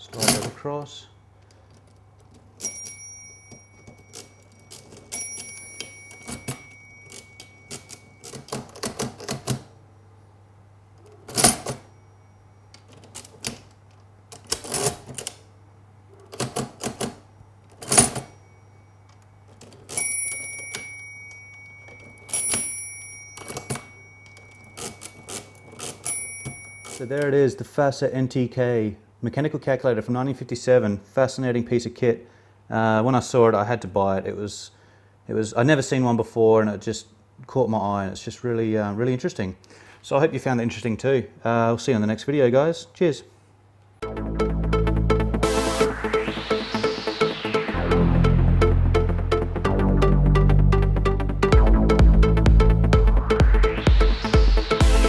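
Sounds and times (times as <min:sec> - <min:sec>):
mechanical calculator clacking: 0:01.7 - 0:09.7, 0:11.1 - 0:11.9, 0:14.4 - 0:15.4, 0:16.2 - 0:18.4, 0:19.5 - 0:27.3
calculator bell ringing: 0:02.6 - 0:09.0, 0:17.9 - 0:27.4.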